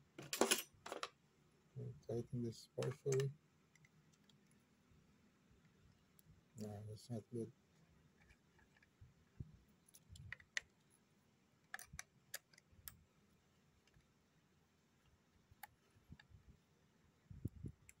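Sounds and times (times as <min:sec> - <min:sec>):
metal parts handled: 0:00.2 - 0:01.1.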